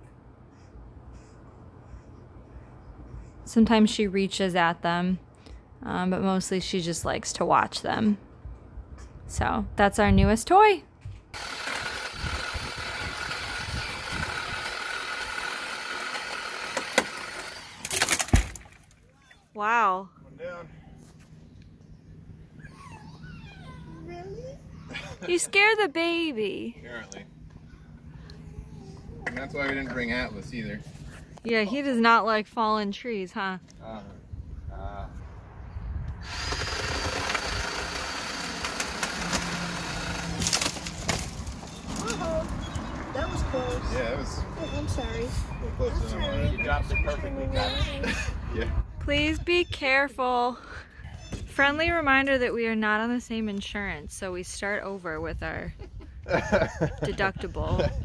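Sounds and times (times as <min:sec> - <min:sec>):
chainsaw cutting wood: 0:11.4 - 0:18.8, 0:36.2 - 0:42.2
wood cracking: 0:14.3 - 0:19.0, 0:36.2 - 0:42.2.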